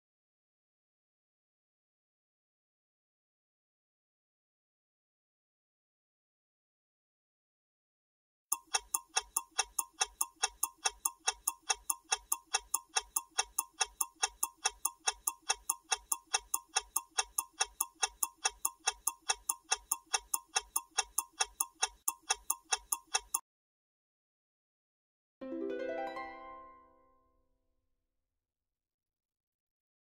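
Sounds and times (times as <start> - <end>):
countdown timer ticking: 8.5 - 23.4.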